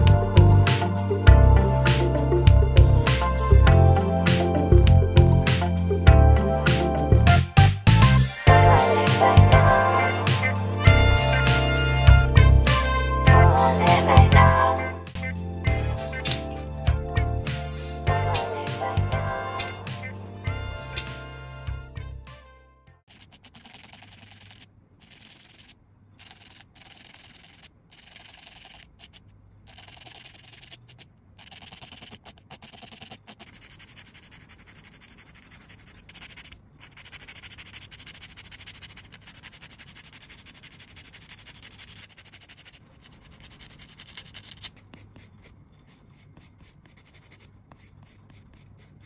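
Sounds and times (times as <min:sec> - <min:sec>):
nail file rasping: 0:08.8 - 0:20.2, 0:20.8 - 0:21.8, 0:23.1 - 0:49.0.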